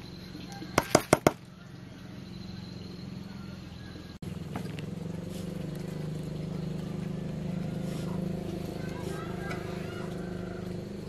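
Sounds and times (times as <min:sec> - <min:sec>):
low engine-like hum: 0:00.0 - 0:11.0
metal spoon knocking plastic basin: 0:00.8 - 0:01.4.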